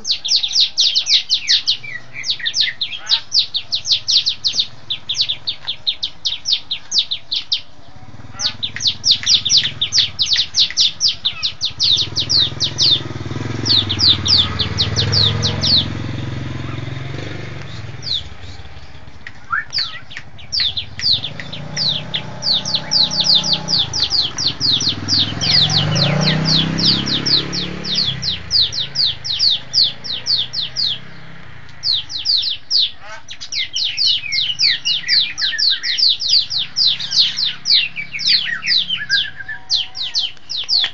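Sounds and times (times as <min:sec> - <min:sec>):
bird singing sharp notes: 0:00.0 - 0:40.9
motor low hum: 0:01.4 - 0:32.8.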